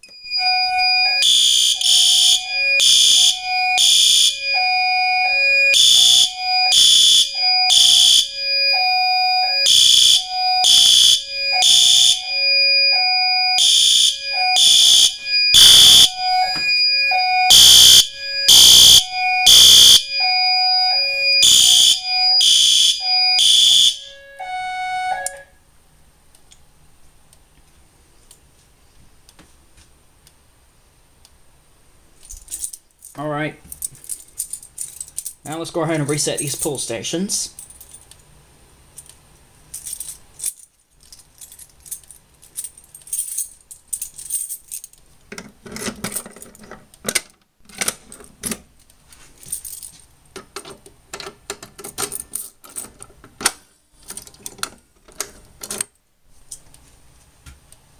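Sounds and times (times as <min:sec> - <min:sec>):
fire alarm horn blasts: 0:00.0 - 0:25.6.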